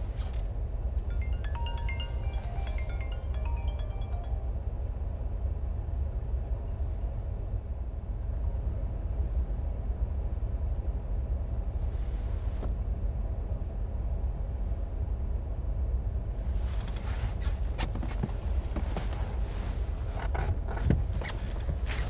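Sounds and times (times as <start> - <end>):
car cabin rumble: 16.8 - 22.0.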